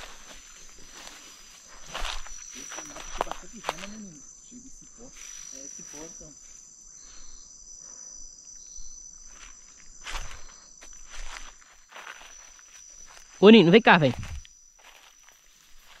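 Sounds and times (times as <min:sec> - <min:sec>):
footsteps in dry leaves: 0:00.0 - 0:04.2, 0:09.2 - 0:16.0
insects chirring: 0:00.0 - 0:16.0.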